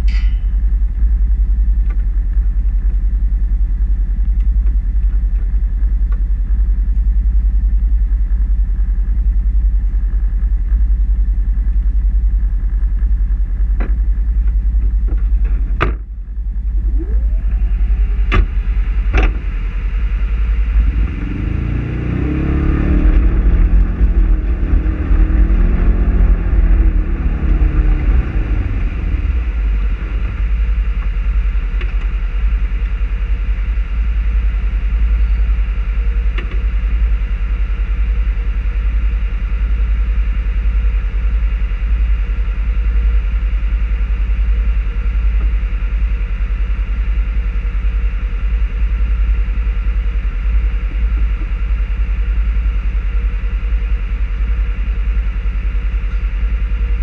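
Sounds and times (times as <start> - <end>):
engine idling with low rumble: 0.0 - 57.0
engine revving and pulling away: 20.3 - 31.2.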